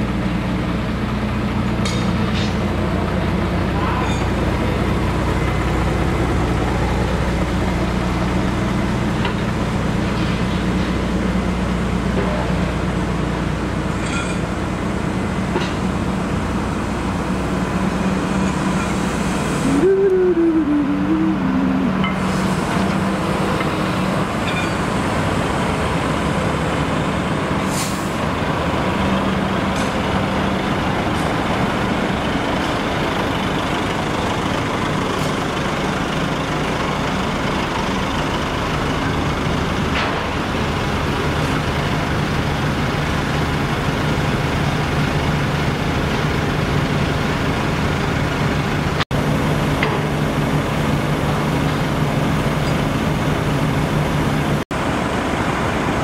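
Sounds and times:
truck diesel engines running: 0:00.0 - 0:56.0.

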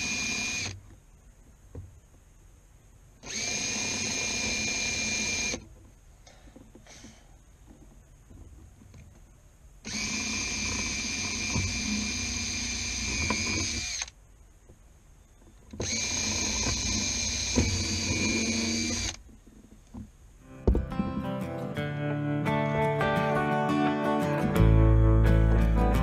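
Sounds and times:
cordless drill drilling into wood: 0:00.0 - 0:00.8, 0:03.2 - 0:05.6, 0:09.8 - 0:14.2, 0:15.8 - 0:19.2.

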